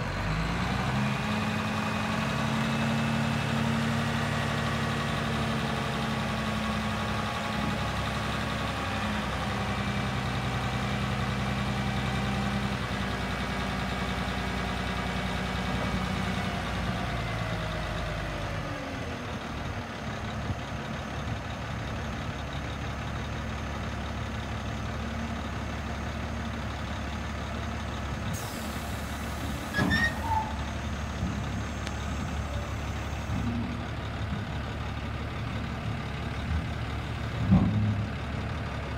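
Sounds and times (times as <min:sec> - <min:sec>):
diesel truck engine running: 0:00.0 - 0:38.9
metal clank with squeak: 0:29.7 - 0:30.6.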